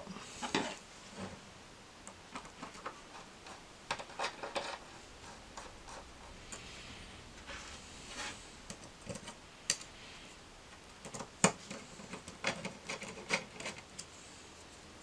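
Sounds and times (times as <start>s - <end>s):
metal clicks and scrapes: 2.4s - 6.7s, 11.0s - 14.1s.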